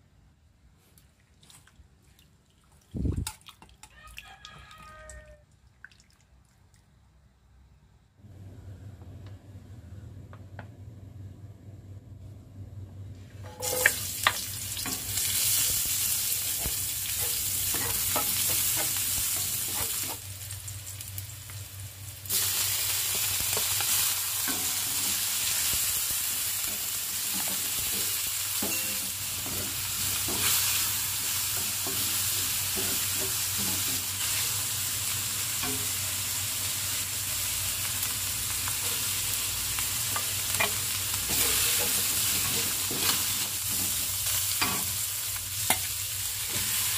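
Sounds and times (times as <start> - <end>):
food sizzling in a wok: 13.5 - 46.9
wooden spatula scraping wok: 40.1 - 44.9.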